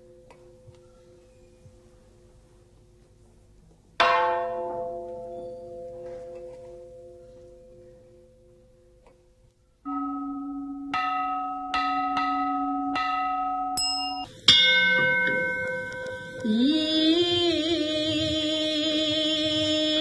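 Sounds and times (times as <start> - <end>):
bells ringing: 9.9 - 17.4.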